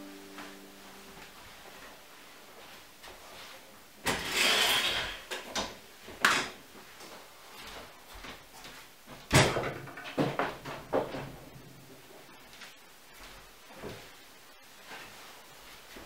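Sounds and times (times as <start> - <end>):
metal legs scraping: 4.1 - 5.2.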